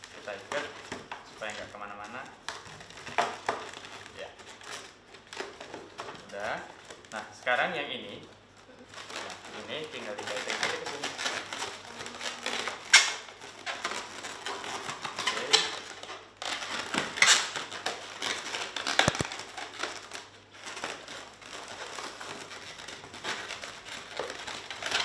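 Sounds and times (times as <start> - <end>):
balloons rubbing and squeaking: 0.0 - 25.0.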